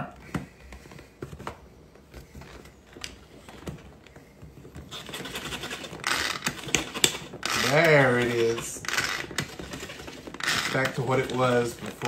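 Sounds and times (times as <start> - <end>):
food chopper rattling: 4.9 - 12.0.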